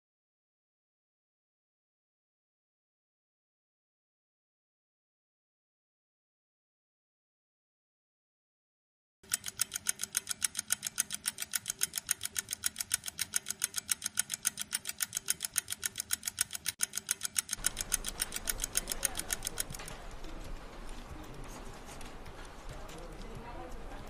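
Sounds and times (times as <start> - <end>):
clock ticking fast: 9.2 - 24.0.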